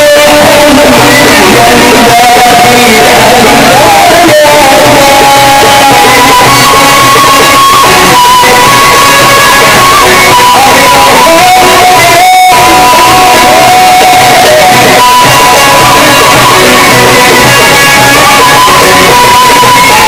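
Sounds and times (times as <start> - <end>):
loud amplified band music: 0.0 - 20.0.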